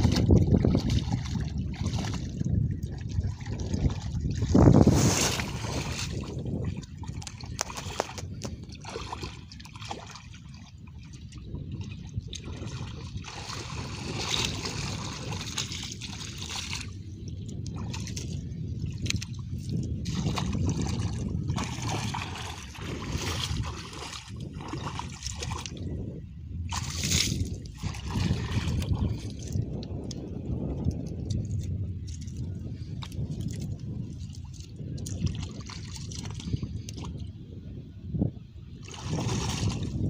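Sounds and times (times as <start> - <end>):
muddy water sloshing: 0.0 - 26.0, 26.6 - 37.3, 38.7 - 40.0
sharp water splashes: 7.1 - 10.4, 12.4 - 16.9, 20.0 - 25.8, 26.7 - 29.1, 38.8 - 40.0.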